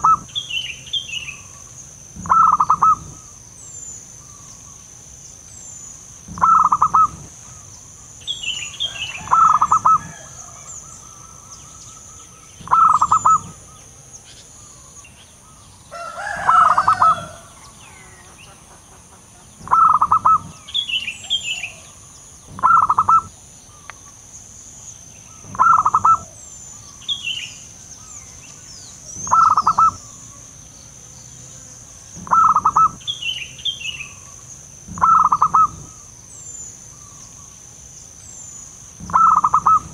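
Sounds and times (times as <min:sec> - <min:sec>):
dove cooing: 0:00.0 - 0:00.4, 0:02.2 - 0:03.3, 0:06.3 - 0:07.6, 0:08.8 - 0:11.8, 0:12.6 - 0:13.8, 0:16.0 - 0:18.3, 0:19.6 - 0:23.3, 0:25.4 - 0:26.4, 0:29.0 - 0:30.2, 0:32.2 - 0:33.1, 0:34.9 - 0:36.0, 0:39.0 - 0:39.9
small birds chirping: 0:00.0 - 0:39.9.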